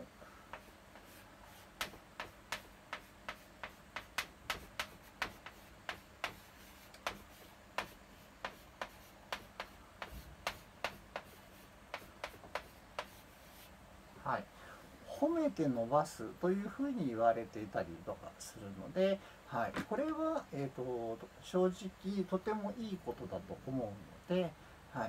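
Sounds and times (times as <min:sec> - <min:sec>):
chalk tapping on blackboard: 0:00.5 - 0:13.7.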